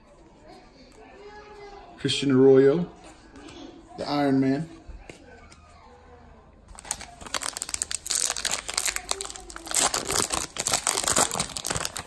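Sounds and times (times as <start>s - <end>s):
plastic wrapper crinkling and tearing: 6.7s - 12.0s.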